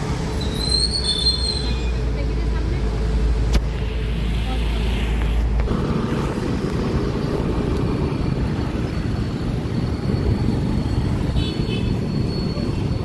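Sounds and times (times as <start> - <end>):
road noise: 0.0 - 13.0
surrounding vehicles: 0.0 - 13.0
motorcycle engine: 5.6 - 12.0.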